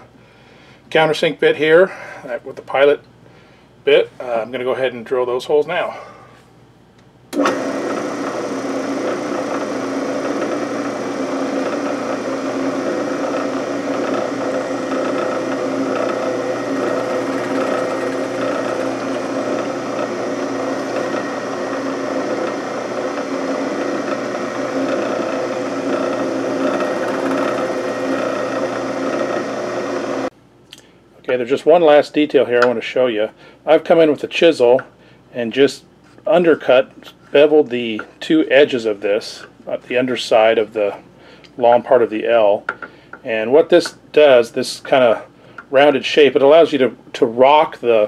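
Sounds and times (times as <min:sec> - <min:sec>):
drill press running: 0:07.3 - 0:30.3
drill bit boring into wood: 0:07.4 - 0:30.3.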